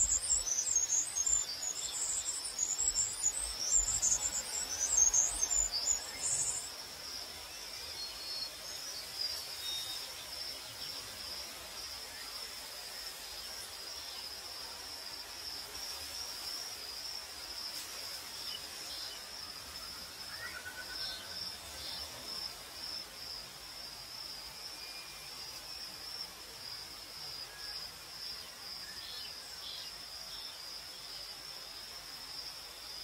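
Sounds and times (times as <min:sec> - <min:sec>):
crickets chirping: 0:00.0 - 0:33.0
soft hiss of night air: 0:00.0 - 0:33.0.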